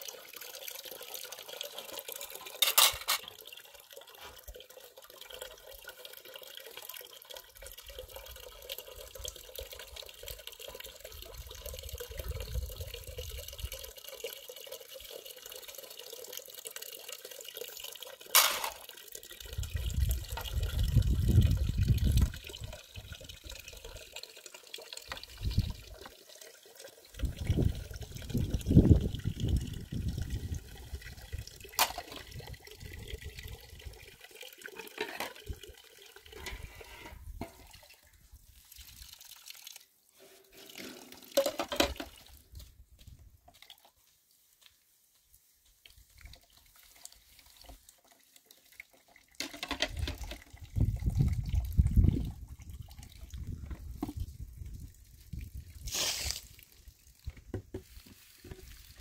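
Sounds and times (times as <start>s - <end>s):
water running from tap into metal pot: 0.0s - 37.8s, 47.0s - 53.6s.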